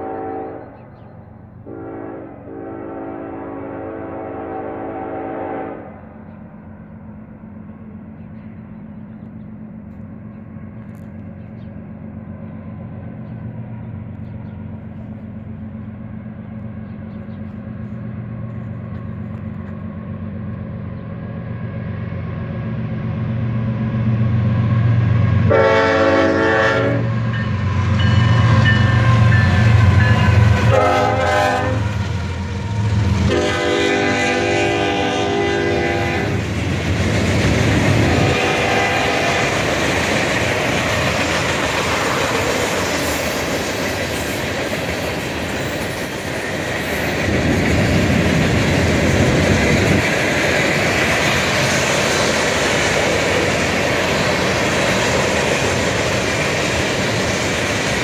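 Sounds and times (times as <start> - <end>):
train horn blasts: 0.0 - 0.9, 1.6 - 6.2, 25.3 - 36.4, 37.9 - 39.8
locomotive engine drone: 0.0 - 58.0
freight cars rolling past: 6.2 - 58.0.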